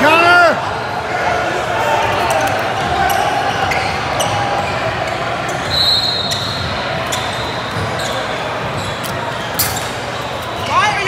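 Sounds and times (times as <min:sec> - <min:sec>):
murmur of spectators: 0:00.0 - 0:11.0
basketball bouncing on court: 0:06.3 - 0:09.1.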